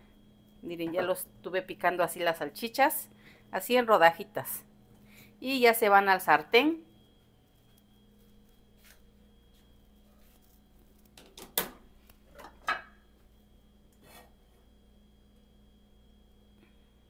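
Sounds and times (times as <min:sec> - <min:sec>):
faint steady hum: 0:00.0 - 0:17.0
plate set on metal grate: 0:11.2 - 0:13.0
kitchenware knocking and clattering: 0:12.3 - 0:13.0.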